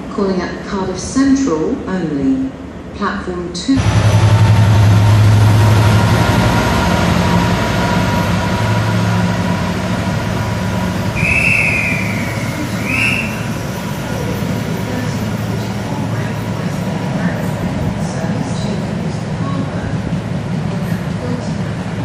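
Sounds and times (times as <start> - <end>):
diesel locomotive engine: 3.6 - 22.0
high squeals: 10.9 - 14.1.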